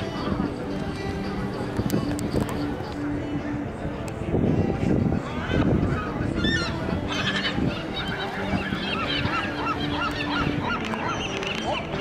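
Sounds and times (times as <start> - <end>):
gulls calling: 5.2 - 12.0.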